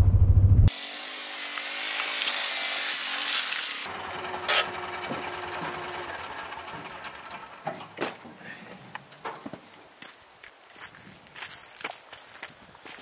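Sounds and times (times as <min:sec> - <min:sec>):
utility vehicle engine running: 0:03.9 - 0:08.2.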